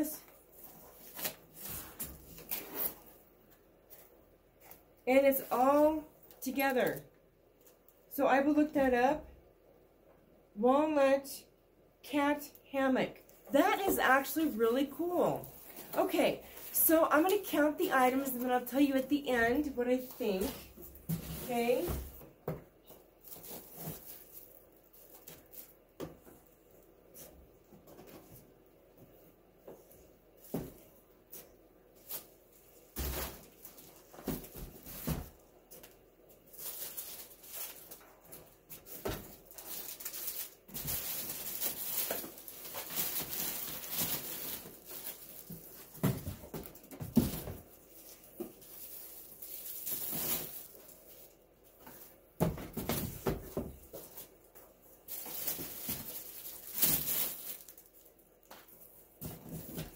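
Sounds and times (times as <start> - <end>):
plastic packaging crinkling: 23.2 - 25.8, 35.8 - 51.4, 55.0 - 58.9
knocks and thumps on cardboard box: 52.4 - 53.9.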